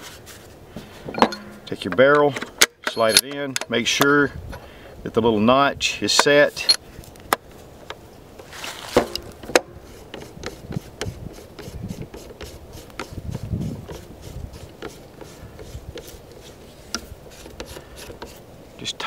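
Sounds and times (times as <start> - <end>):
metal parts rubbing and scraping: 0.0 - 3.3, 8.5 - 18.5.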